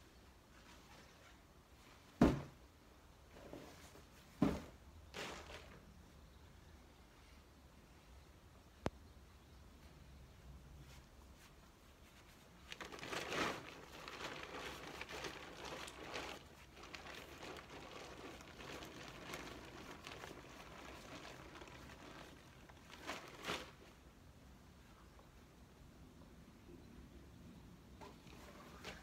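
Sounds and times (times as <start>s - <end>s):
tent fabric rustling: 10.8s - 24.1s.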